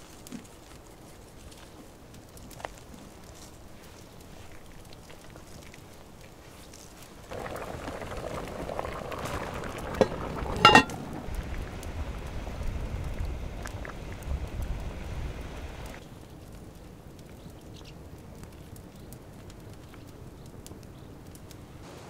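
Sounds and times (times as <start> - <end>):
low rough noise: 7.3 - 16.0.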